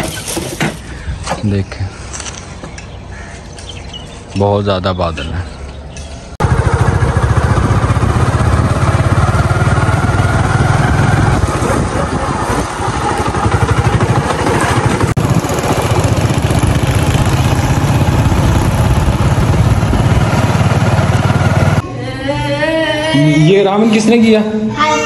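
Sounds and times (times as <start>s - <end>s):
motorcycle engine running: 6.4s - 21.8s.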